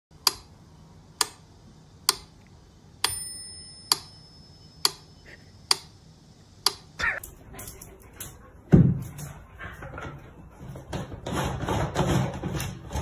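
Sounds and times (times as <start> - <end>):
bell-like ringing tone: 3.1 - 5.2.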